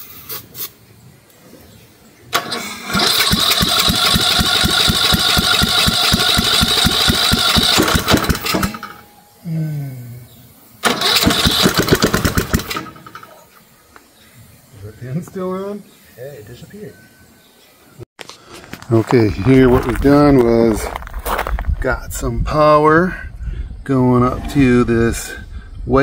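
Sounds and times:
lawn mower engine cranking: 2.3 - 9.1, 10.8 - 13.6.

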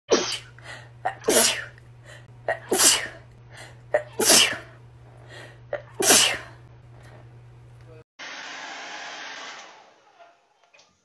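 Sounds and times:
woman sneezing: 1.1 - 1.7, 2.5 - 3.2, 4.0 - 4.7, 5.8 - 6.6.

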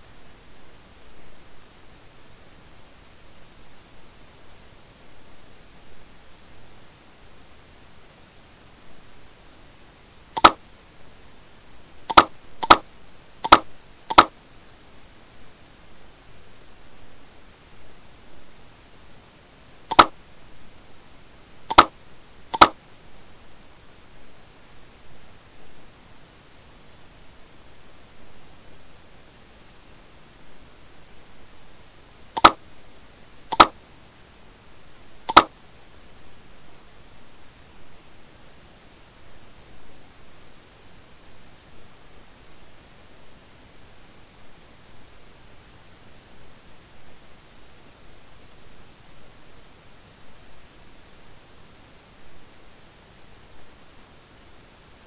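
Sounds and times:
faint steady hiss: 0.0 - 55.0
computer mouse button clicking: 10.4 - 10.6, 12.1 - 12.8, 13.4 - 14.3, 19.9 - 20.1, 21.7 - 21.9, 22.6 - 22.8, 32.4 - 32.6, 33.5 - 33.7.

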